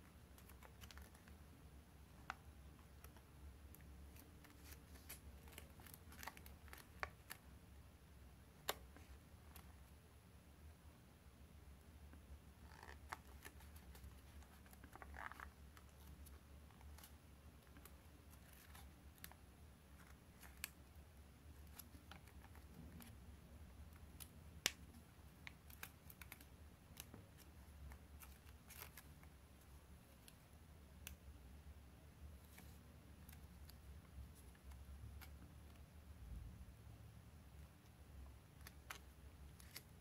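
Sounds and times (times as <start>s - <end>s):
paper crinkling and clicking: 0.4s - 1.4s, 2.2s - 7.4s, 25.5s - 29.3s, 38.6s - 40.0s.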